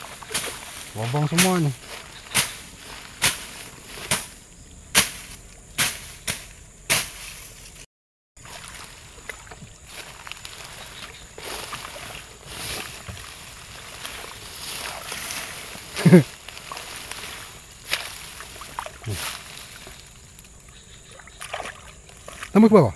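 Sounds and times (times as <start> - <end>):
mud and water squelching: 0.0 - 7.3, 8.4 - 22.9
rustling vegetation: 0.0 - 22.9
sharp strikes: 1.3 - 7.4.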